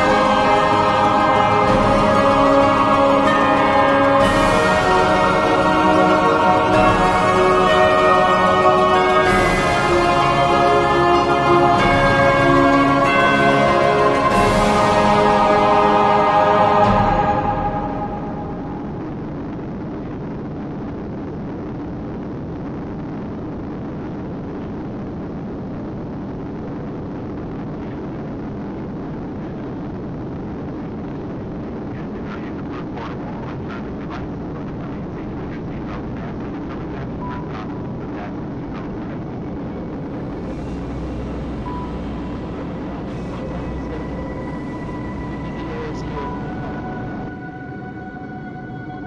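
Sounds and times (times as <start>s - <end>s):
jet engines in airplane cabin: 39.6s - 49.0s.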